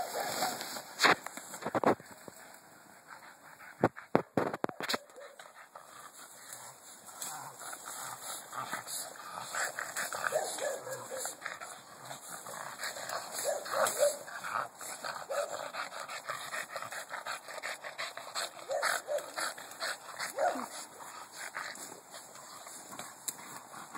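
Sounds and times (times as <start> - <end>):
rustling leaves and branches: 0.0 - 23.9
dogs whimpering and yipping: 13.4 - 14.3, 15.2 - 15.6, 18.4 - 19.5, 20.2 - 20.7.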